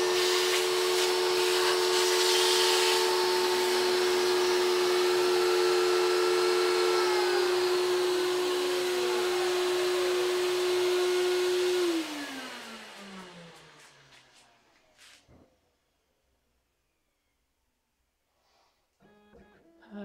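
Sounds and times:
router spindle whine: 0.0 - 14.0
shop vacuum running: 0.0 - 15.2.

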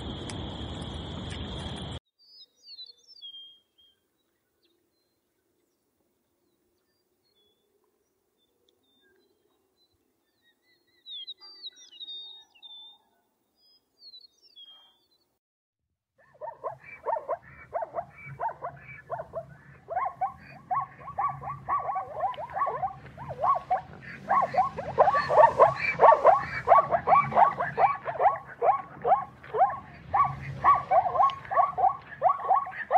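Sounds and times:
zebra calling: 16.2 - 32.9.

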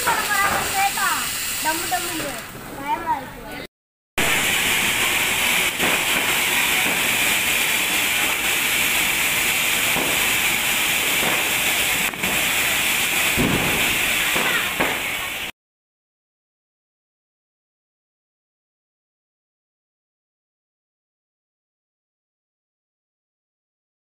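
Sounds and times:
firework sparks hissing: 0.0 - 3.3, 4.2 - 15.5.

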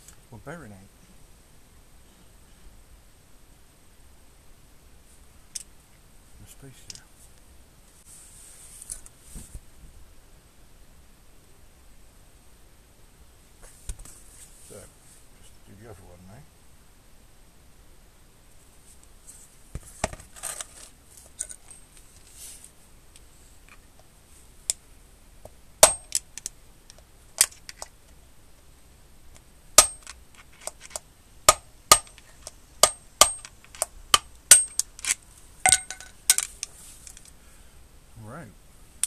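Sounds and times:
hammer tapping metal: 25.8 - 26.2, 29.8 - 30.1, 31.5 - 34.8, 35.7 - 36.4.

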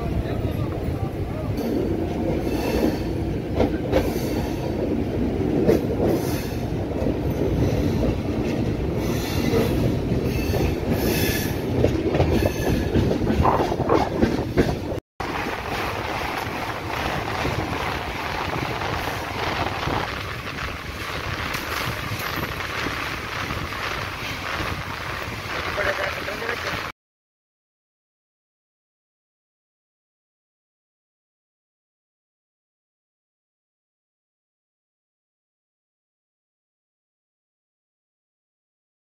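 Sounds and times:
train rumbling over bridge: 0.0 - 26.9.

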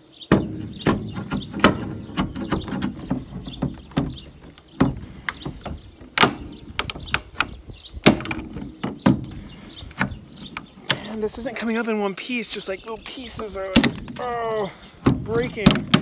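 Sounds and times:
knocks: 0.3 - 9.4, 15.0 - 16.0
brittle plastic cracking: 6.0 - 11.4, 13.0 - 16.0.

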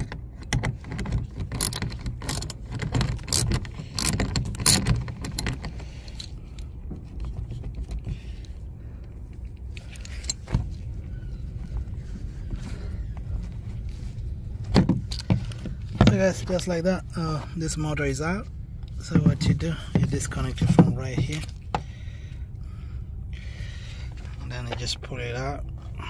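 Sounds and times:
low steady rumble: 0.0 - 26.0
ratchet wrench clicking: 1.4 - 6.3.

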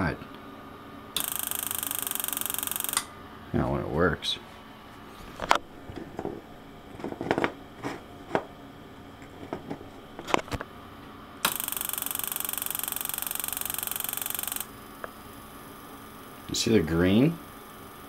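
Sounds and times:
spark gap buzzing: 1.2 - 3.1, 11.4 - 18.0.

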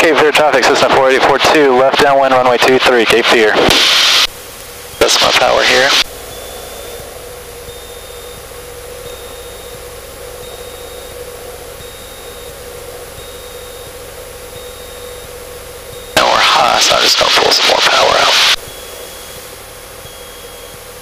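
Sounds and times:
aircraft engine droning: 0.0 - 21.0
faint high beep: 4.7 - 21.0.

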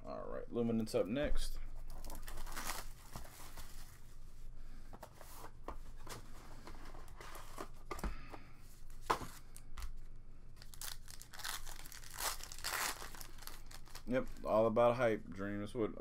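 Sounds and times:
plastic wrapping crinkling and tearing: 1.8 - 3.9, 10.6 - 14.6
foil pack tearing open: 10.6 - 14.1.

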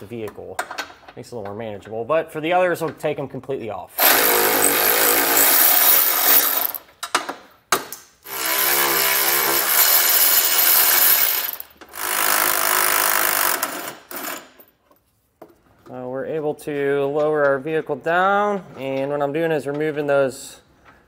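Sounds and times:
electric ratchet spinning nuts: 4.0 - 6.9, 8.2 - 14.6.

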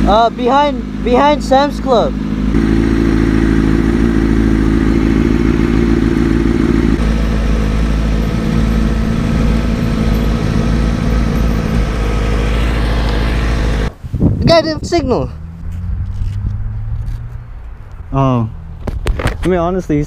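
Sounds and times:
motorcycle engine running: 0.0 - 13.9
low wind rumble: 2.3 - 20.0.

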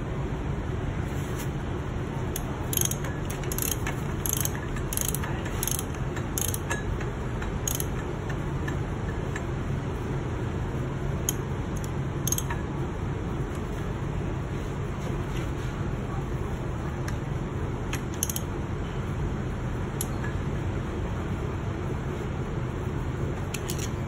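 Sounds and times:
steady low hum: 0.0 - 24.0
socket ratchet clicking: 2.3 - 8.1, 11.2 - 12.6, 17.9 - 18.5, 23.5 - 24.0.

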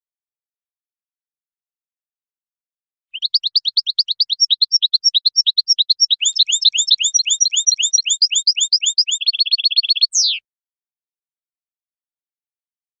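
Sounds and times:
goldfinch singing: 3.2 - 10.4.

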